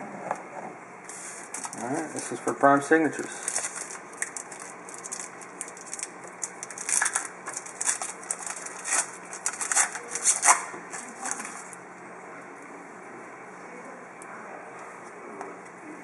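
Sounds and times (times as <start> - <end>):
foil wrapper crinkling: 1.1 - 2.6, 3.2 - 11.8.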